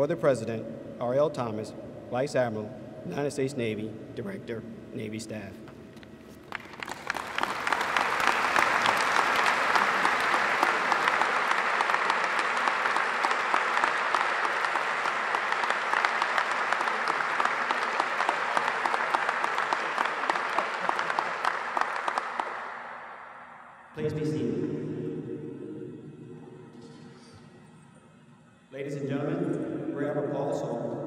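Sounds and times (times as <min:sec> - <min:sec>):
audience applauding: 0:06.3 - 0:23.6.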